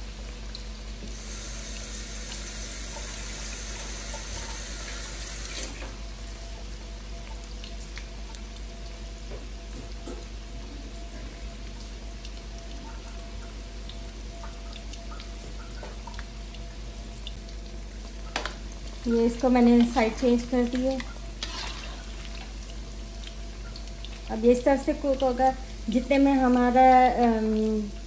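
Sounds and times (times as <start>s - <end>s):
chicken deep-frying in oil: 0.0s - 28.0s
oil popping and crackling: 7.1s - 28.0s.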